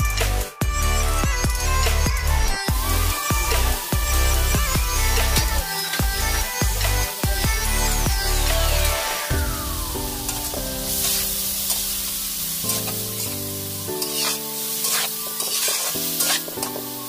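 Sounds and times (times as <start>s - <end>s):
background music: 0.0s - 17.0s
vegetables sizzling in a wok: 1.9s - 17.0s
metal spatula scraping a wok: 10.3s - 16.9s.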